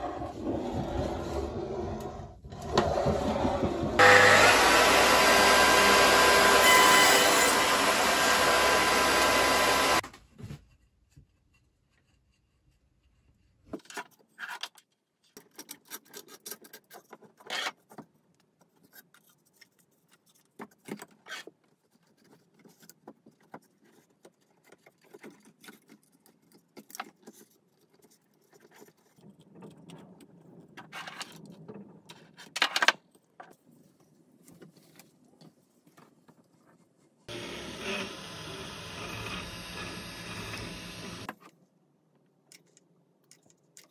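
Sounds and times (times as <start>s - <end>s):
table saw cutting wood: 2.7s - 10.0s, 37.3s - 41.3s.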